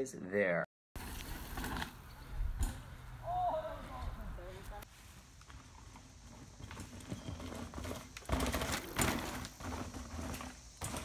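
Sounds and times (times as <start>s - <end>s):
bike tyres knocking over roots: 1.0s - 4.0s, 5.3s - 11.0s.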